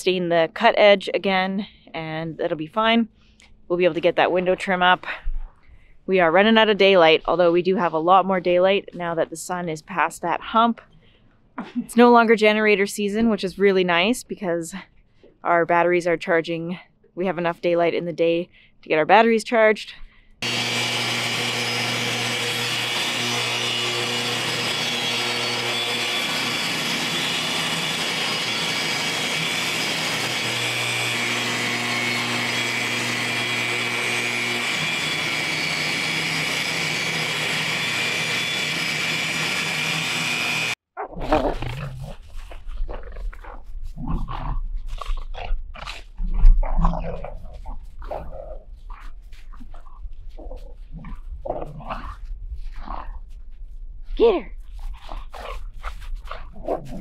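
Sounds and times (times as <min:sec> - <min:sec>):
table saw cutting boards: 0:20.4 - 0:40.8
dogs growling and scuffling: 0:41.0 - 0:57.0.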